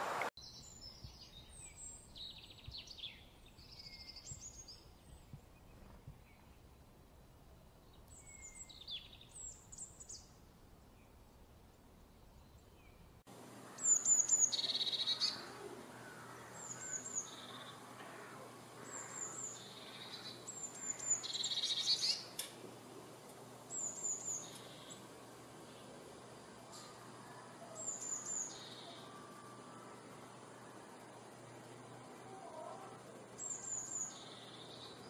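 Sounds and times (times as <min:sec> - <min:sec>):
bird singing with buzzy trill: 0:00.4 - 0:06.8, 0:07.8 - 0:10.3, 0:13.7 - 0:15.6, 0:16.4 - 0:18.0, 0:18.8 - 0:22.3, 0:23.6 - 0:25.9, 0:27.7 - 0:35.0
faint high bird chirps: 0:26.7 - 0:31.0, 0:31.9 - 0:35.0.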